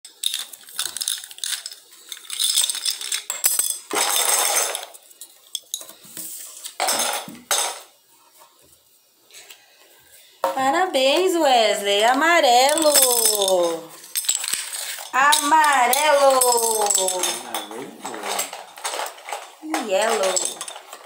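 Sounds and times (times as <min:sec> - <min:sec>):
plastic pieces clicking on stone: 0:00.1 - 0:04.8.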